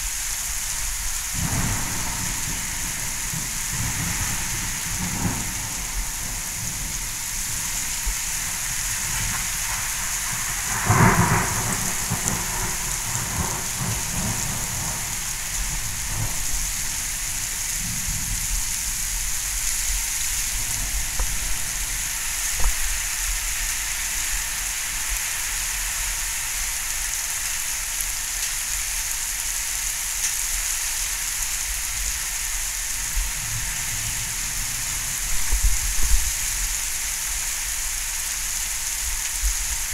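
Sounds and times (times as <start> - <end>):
heavy rain pouring: 0.0 - 39.9
thunderclap rumbling: 1.4 - 18.6, 20.4 - 23.1.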